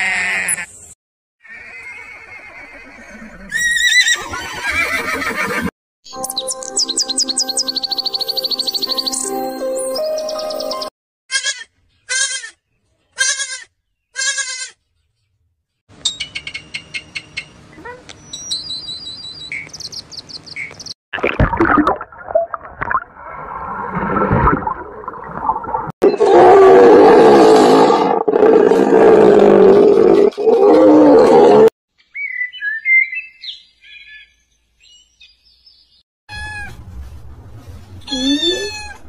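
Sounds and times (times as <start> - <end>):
goat bleating: 0.0 - 0.7, 11.3 - 12.6, 13.2 - 14.8
hippopotamus roar: 26.1 - 31.7.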